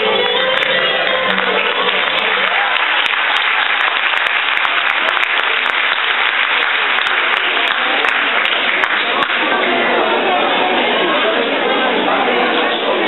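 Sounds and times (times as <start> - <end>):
dance music: 0.0 - 3.3
audience applauding: 0.0 - 10.0.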